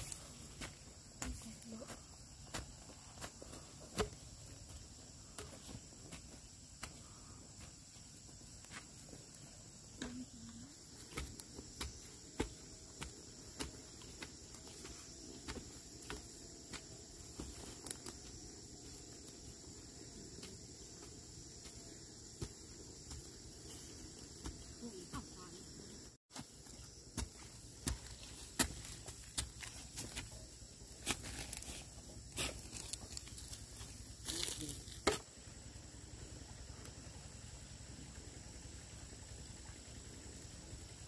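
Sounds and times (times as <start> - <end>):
insects chirring: 0.0 - 41.0
poles tapping into soil: 0.5 - 7.2, 26.3 - 31.6
footsteps on dry leaves: 26.4 - 35.0.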